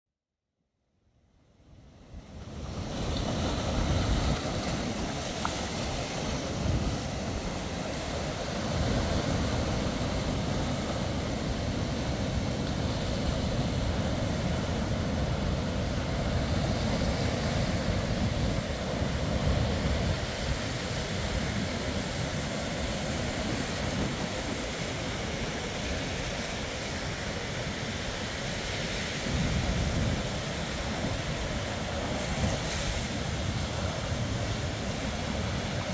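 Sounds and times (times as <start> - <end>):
wind rumbling on microphone: 1.7 - 35.9
ocean surf breaking: 2.2 - 35.9.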